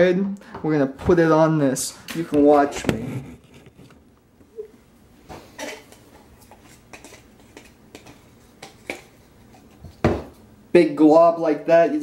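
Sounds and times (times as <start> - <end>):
butter knife scraping jar: 6.4 - 9.8.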